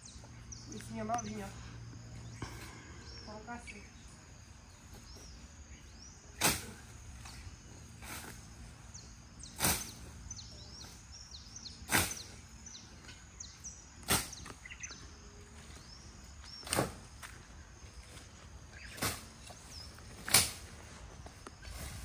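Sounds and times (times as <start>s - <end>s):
birds chirping: 0.0s - 22.0s
sickle swishing through grass: 6.4s - 8.8s, 9.5s - 10.2s, 11.8s - 12.4s, 18.0s - 22.0s.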